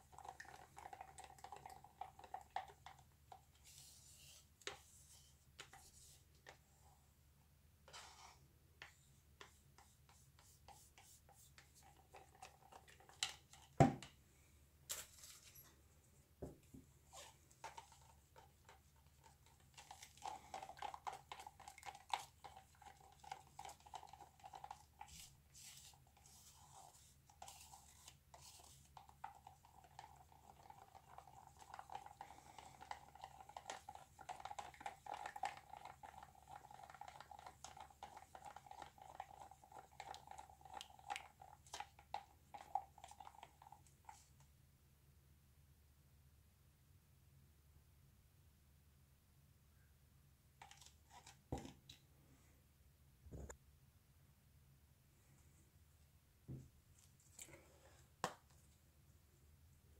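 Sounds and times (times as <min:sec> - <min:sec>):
stick stirring in plastic cup: 0:00.0 - 0:06.9, 0:07.9 - 0:14.2, 0:17.1 - 0:44.5, 0:50.6 - 0:52.0.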